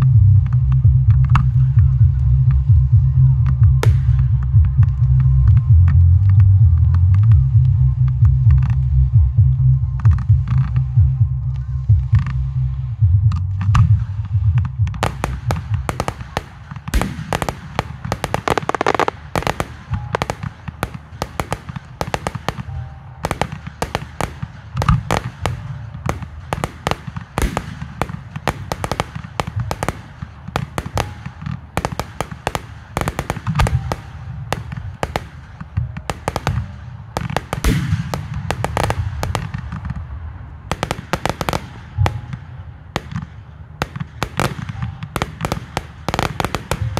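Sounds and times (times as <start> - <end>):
heavy low rumble: 0.0 - 46.9
fireworks bangs and crackles: 2.9 - 6.4, 13.6 - 46.9.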